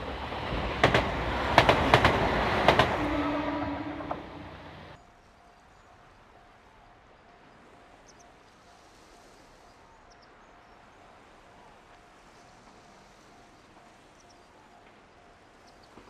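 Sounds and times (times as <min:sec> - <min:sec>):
low steady hiss: 0:04.6 - 0:16.0.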